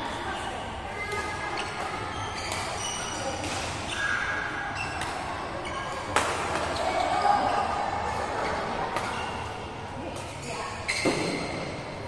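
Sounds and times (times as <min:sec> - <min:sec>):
shoes squeaking on court floor: 0:00.4 - 0:09.6, 0:10.3 - 0:11.8
racket hitting shuttlecock: 0:01.0 - 0:03.8, 0:06.0 - 0:06.8, 0:08.9 - 0:09.4.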